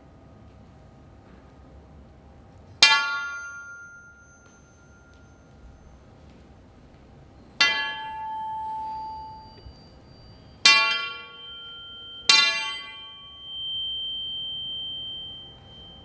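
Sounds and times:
metal pole striking floor: 2.8s - 5.8s, 7.6s - 9.8s, 10.6s - 14.2s.

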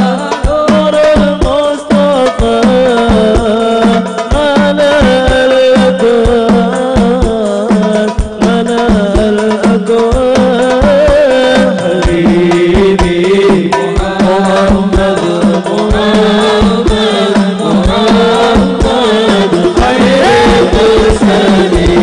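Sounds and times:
frame drums: 0.0s - 22.0s
man singing into microphone: 0.0s - 22.0s
bass drum beating: 10.1s - 22.0s.

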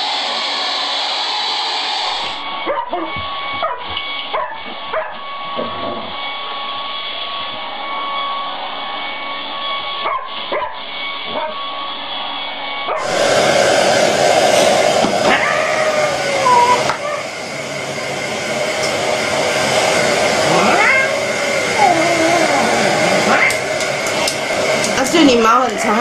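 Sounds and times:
hair dryer running: 0.0s - 26.0s
dog barking and yipping: 2.6s - 5.3s, 10.0s - 11.6s.

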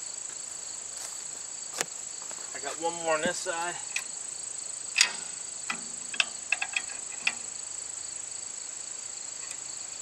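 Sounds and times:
insect drone: 0.0s - 10.0s
metal clinks: 5.0s - 7.5s.

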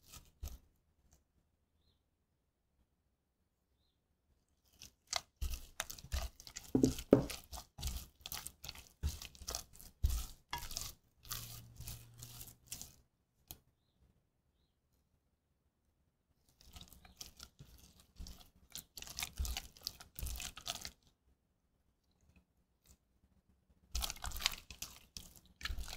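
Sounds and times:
wet dough squelching: 4.6s - 13.1s, 16.5s - 21.1s, 23.9s - 25.9s
spatula scraping a pan: 5.1s - 13.0s, 16.6s - 20.6s.

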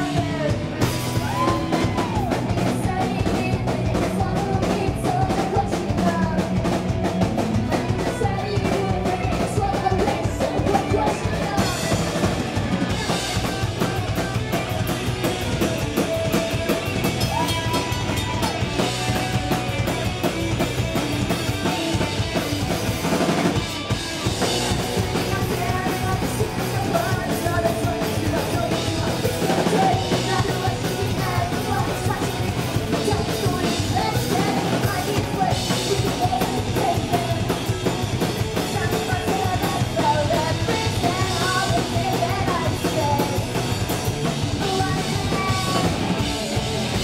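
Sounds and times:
woman singing: 0.0s - 6.9s, 7.5s - 14.9s, 24.7s - 46.5s
bass guitar: 0.0s - 47.0s
distorted electric guitars: 0.0s - 47.0s
drum kit: 0.0s - 47.0s.

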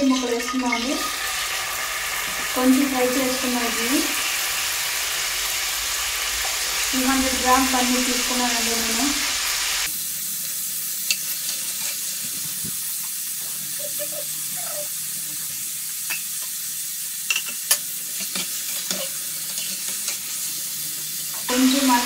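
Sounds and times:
food sizzling in hot oil: 0.0s - 22.0s.

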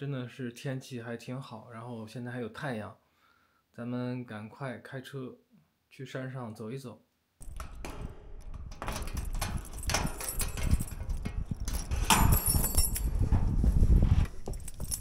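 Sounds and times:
door handle clacking: 7.4s - 13.2s
keys clicking in lock: 7.4s - 13.3s, 14.3s - 15.0s
metal garage door rattling open: 7.4s - 13.6s.

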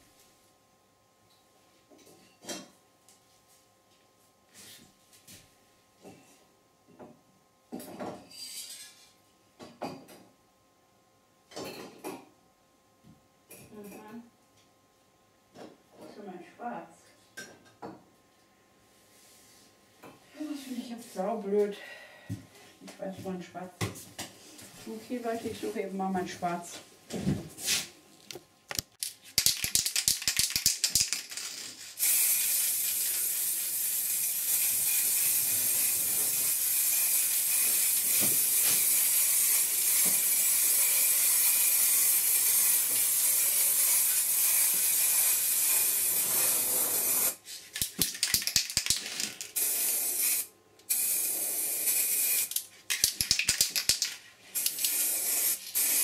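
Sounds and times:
spray can rattling: 28.7s - 46.4s, 47.0s - 56.0s
spray paint hissing: 29.4s - 47.4s, 49.6s - 56.0s.

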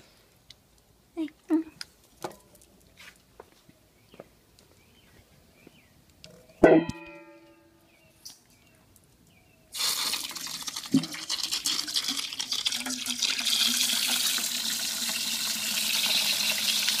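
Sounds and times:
water splashing into metal bowl: 9.8s - 17.0s.

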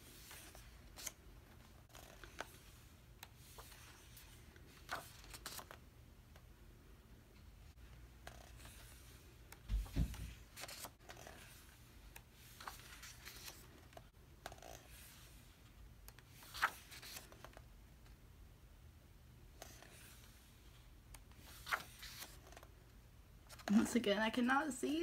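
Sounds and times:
page flip: 0.0s - 5.8s, 8.2s - 15.4s, 16.2s - 17.6s, 21.4s - 22.7s
paper pages rustling: 0.0s - 5.8s, 8.2s - 15.5s, 16.2s - 17.6s, 21.4s - 22.7s
book thumps: 9.7s - 10.5s.

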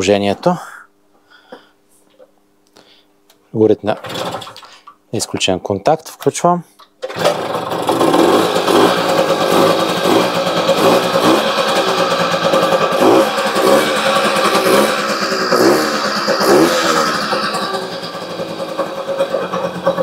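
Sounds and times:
moped engine revving: 7.1s - 20.0s.

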